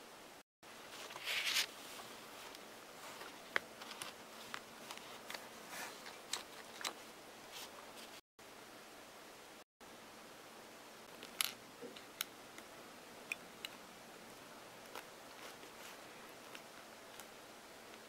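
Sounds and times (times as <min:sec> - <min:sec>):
fingers rustling on phone: 0:00.9 - 0:08.2, 0:14.8 - 0:17.4
small clicks and rubs: 0:01.0 - 0:08.2, 0:14.8 - 0:17.3.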